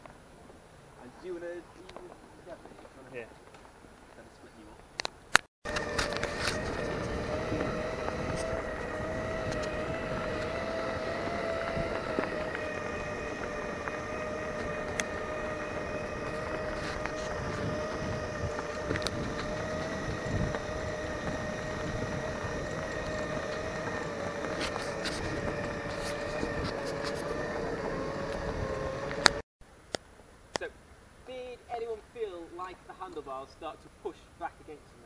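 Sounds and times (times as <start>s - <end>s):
rough rolling noise: 5.6s - 29.4s
electric motors whining: 5.7s - 29.4s.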